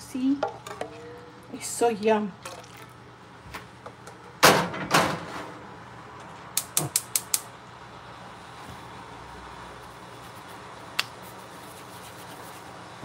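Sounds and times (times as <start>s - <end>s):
sharp clicks: 6.6s - 7.5s.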